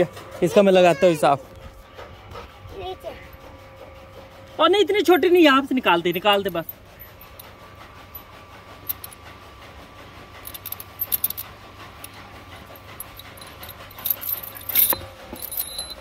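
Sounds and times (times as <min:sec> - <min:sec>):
iron chain clinking and rattling: 0:05.0 - 0:09.2, 0:10.4 - 0:16.0.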